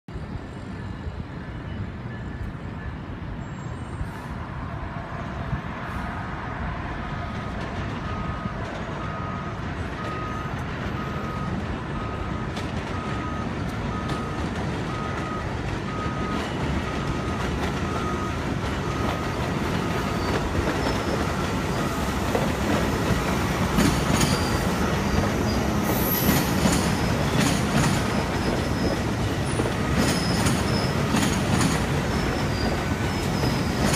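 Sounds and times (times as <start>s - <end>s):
train rumbling past: 0.1s - 33.9s
faint beep: 8.0s - 22.1s
wheels clicking over rail joints: 12.4s - 33.9s
wheel squeal: 17.8s - 33.9s.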